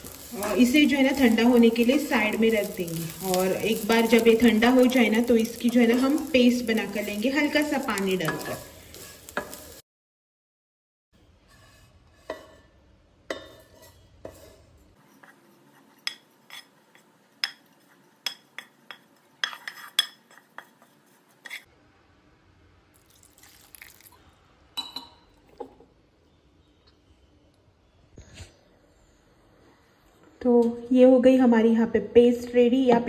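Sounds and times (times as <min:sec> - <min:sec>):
wooden spatula scraping a pan: 0:00.0 - 0:09.8, 0:11.3 - 0:21.7
water trickling into a jar: 0:23.0 - 0:24.2.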